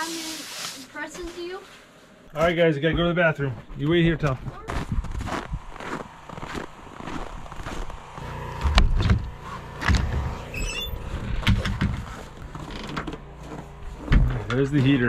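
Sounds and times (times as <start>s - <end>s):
footsteps: 1.1s - 15.0s
heavy thumps: 4.0s - 15.0s
wooden door squeaking open: 9.9s - 13.3s.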